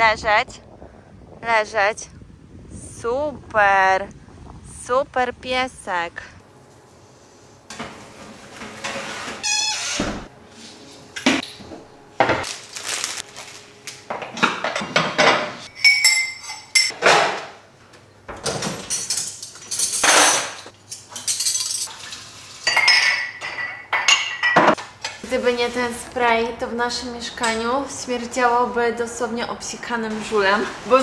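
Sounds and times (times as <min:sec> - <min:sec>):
dishes and cutlery clattering: 0:14.1 - 0:17.4, 0:18.4 - 0:25.2.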